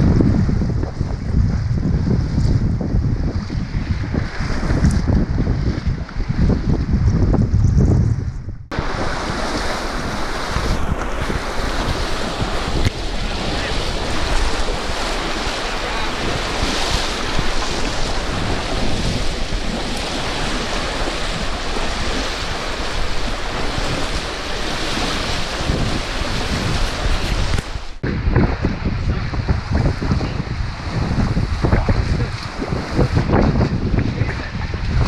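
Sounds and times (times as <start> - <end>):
wind buffeting microphone: 0.0 - 35.0
river water splashing: 8.7 - 28.0, 30.6 - 34.0.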